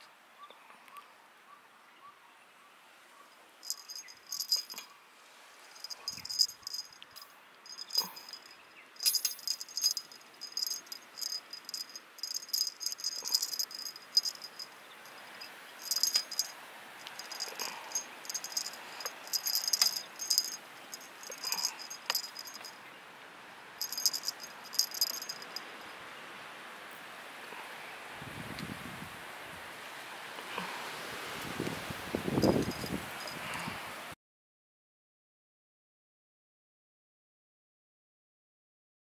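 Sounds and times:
jingle bell on cat toy: 3.6s - 4.8s, 5.8s - 22.7s, 23.8s - 25.9s, 32.3s - 33.6s.

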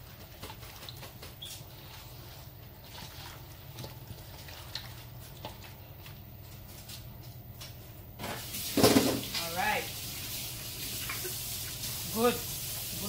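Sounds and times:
wet squishing of meat: 0.2s - 6.4s
tap water running: 8.2s - 13.0s.

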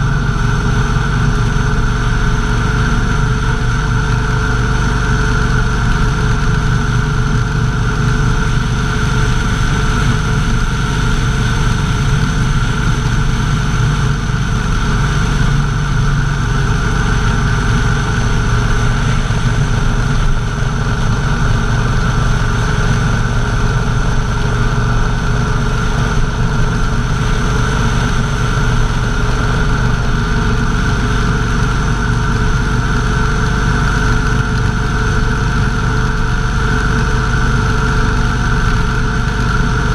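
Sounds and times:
motorcycle engine running: 0.0s - 39.9s
road and wind noise: 0.0s - 39.9s.

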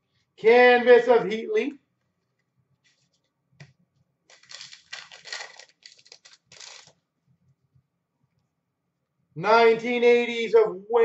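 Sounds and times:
trading cards rustling: 2.8s - 3.3s, 4.3s - 7.0s.

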